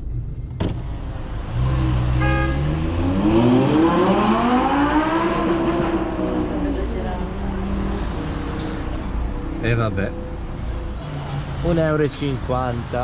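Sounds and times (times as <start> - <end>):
car engine revving up: 0.7 - 10.1.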